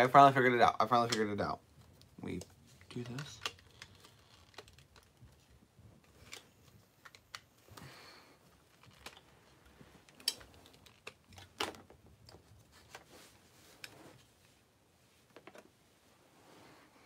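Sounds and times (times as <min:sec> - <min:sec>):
plastic toy parts clicking: 0:02.9 - 0:05.1.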